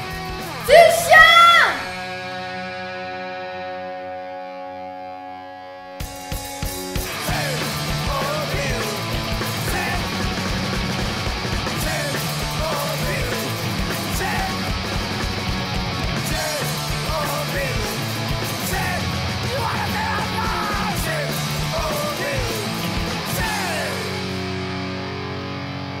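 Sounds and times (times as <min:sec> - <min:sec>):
garage rock music: 0:00.0 - 0:26.0
driving drum beat: 0:06.0 - 0:24.6.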